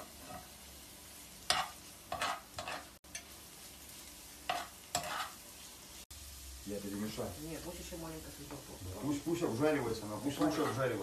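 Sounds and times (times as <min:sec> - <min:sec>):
spatula scraping pan: 0:00.0 - 0:00.6, 0:01.4 - 0:03.3, 0:04.4 - 0:05.4, 0:10.2 - 0:11.0
vegetables sizzling in oil: 0:00.0 - 0:11.0.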